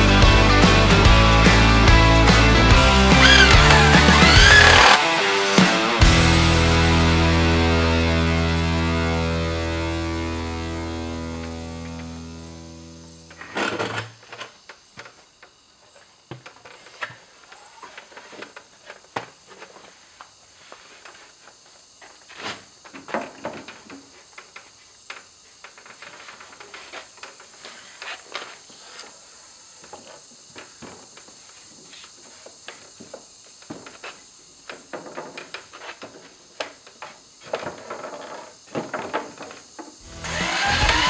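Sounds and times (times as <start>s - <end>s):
wooden boards knocking together: 3.1s - 5.0s, 16.3s - 20.3s, 22.0s - 28.6s, 32.3s - 40.0s
steady hiss: 11.7s - 41.0s.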